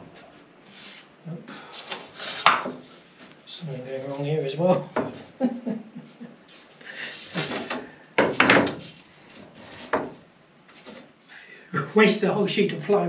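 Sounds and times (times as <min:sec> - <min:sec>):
plywood boards knocking and clattering: 0:07.4 - 0:09.0.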